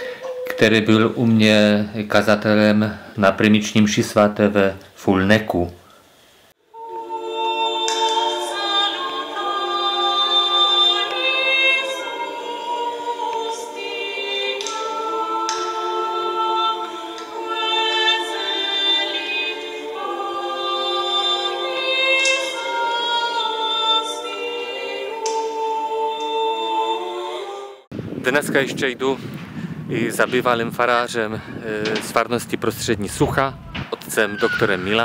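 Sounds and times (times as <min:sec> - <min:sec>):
choir singing a cappella: 0:06.6 - 0:28.0.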